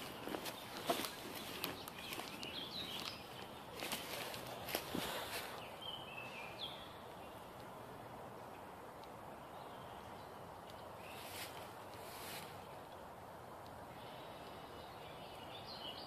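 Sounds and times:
bird chirps: 0:00.0 - 0:04.4
rustles in dry leaves: 0:00.0 - 0:07.3, 0:10.9 - 0:13.0
steady low background hiss: 0:00.0 - 0:16.0.

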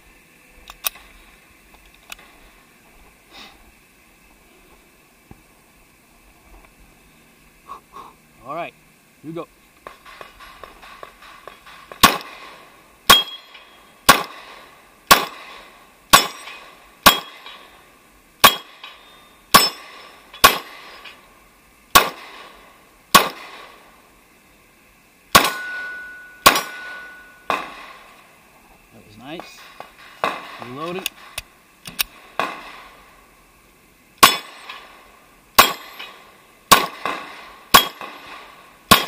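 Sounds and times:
pistol shots: 0:09.8 - 0:17.7, 0:18.4 - 0:18.8, 0:19.5 - 0:21.0, 0:21.9 - 0:23.8, 0:25.3 - 0:28.1, 0:29.6 - 0:31.4, 0:32.1 - 0:33.0, 0:34.2 - 0:34.9, 0:35.6 - 0:39.0.

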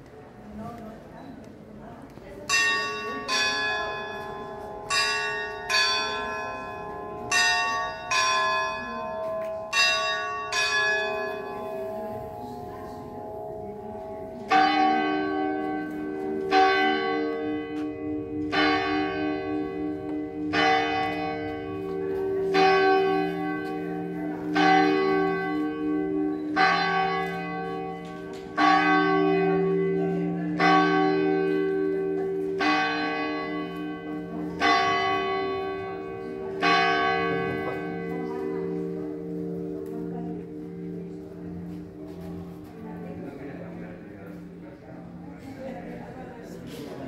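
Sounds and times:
church bell ringing: 0:02.4 - 0:47.0.

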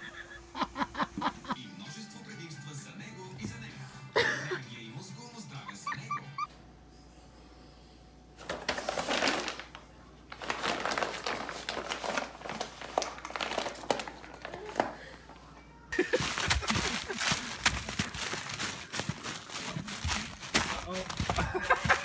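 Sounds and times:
paper bag crinkling and rustling: 0:08.4 - 0:15.1, 0:16.0 - 0:22.0.

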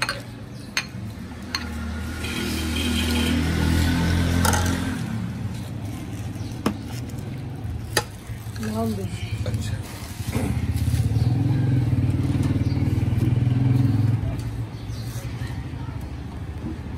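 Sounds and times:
vehicle engine passing by: 0:01.2 - 0:06.6, 0:09.1 - 0:15.9.

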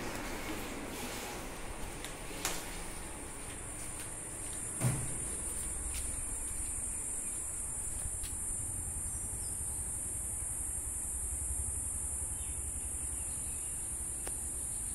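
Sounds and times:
insects droning: 0:00.0 - 0:14.9
thump: 0:04.8 - 0:05.3.

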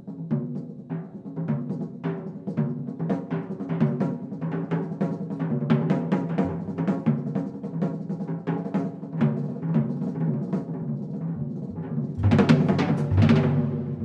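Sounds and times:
drums rolling on toms: 0:00.0 - 0:14.0
double bass: 0:12.2 - 0:14.0.

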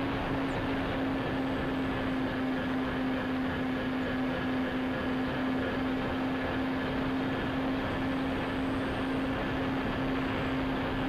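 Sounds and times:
model aircraft motors droning: 0:00.0 - 0:11.0.

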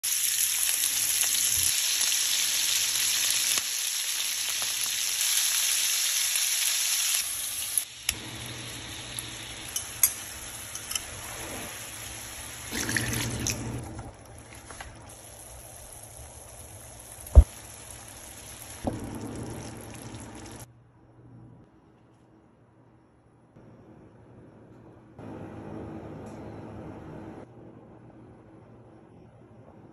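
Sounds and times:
seafood sizzling in hot oil: 0:00.0 - 0:12.8, 0:15.0 - 0:20.7.

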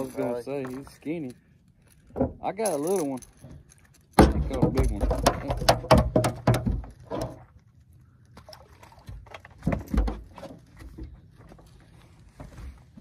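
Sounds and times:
fish handling knocks and clicks: 0:02.1 - 0:07.5, 0:08.4 - 0:11.6.

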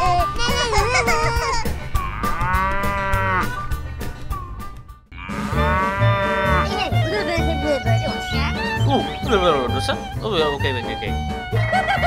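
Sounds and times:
background music with low beat: 0:00.0 - 0:12.0
cow mooing: 0:02.1 - 0:03.6, 0:05.1 - 0:07.0.

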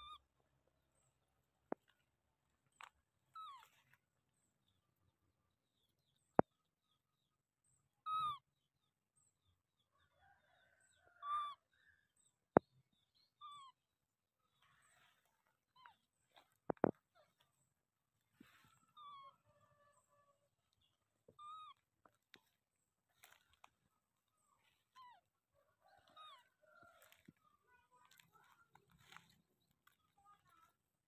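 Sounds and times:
baby monkey cooing: 0:18.5 - 0:21.8.

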